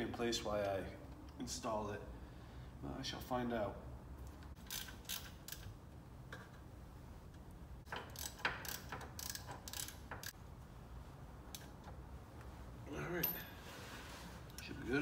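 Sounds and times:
ratchet wrench clicking: 4.6 - 5.8, 7.9 - 10.4.

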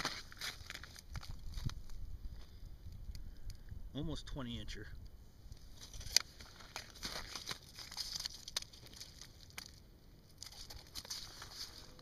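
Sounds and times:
ice and slush crunching: 0.0 - 1.7, 5.8 - 12.0.

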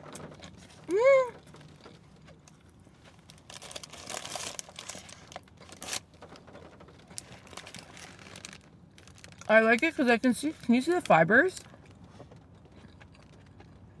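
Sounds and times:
paper wrapper crinkling: 2.4 - 11.6
soft chewing: 11.6 - 14.0.

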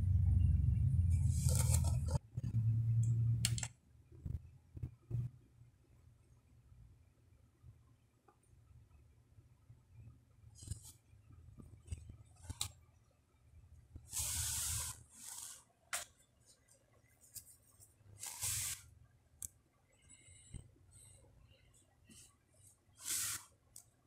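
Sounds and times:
short hissing bursts: 14.1 - 15.6, 18.2 - 18.9, 23.0 - 23.5.

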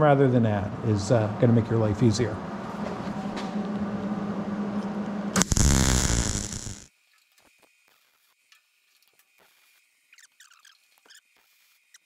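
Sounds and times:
welder arc buzzing and crackling: 5.4 - 6.9.

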